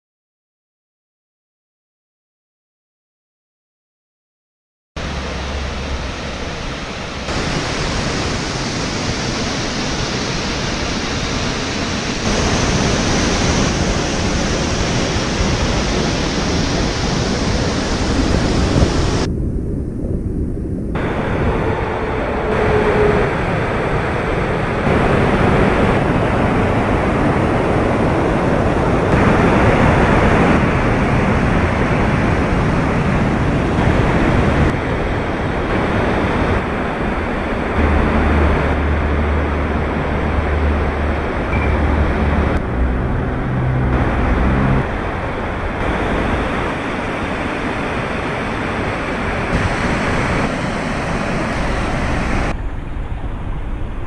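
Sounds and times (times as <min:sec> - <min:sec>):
rush of falling water: 0:05.0 - 0:19.3, 0:23.4 - 0:42.6, 0:43.4 - 0:52.6.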